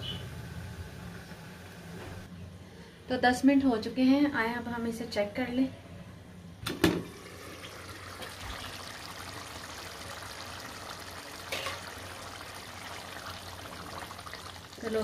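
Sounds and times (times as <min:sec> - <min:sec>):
beans simmering with bubbling: 0:07.0 - 0:15.0.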